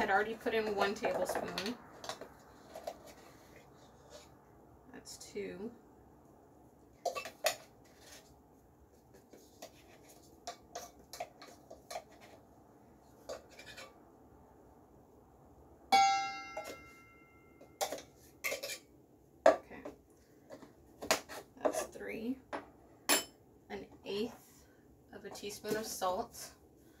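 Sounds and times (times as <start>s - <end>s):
loud ringing metal clink: 15.9s - 17.6s
metal spoons tapping on steel bowl: 16.0s - 18.6s.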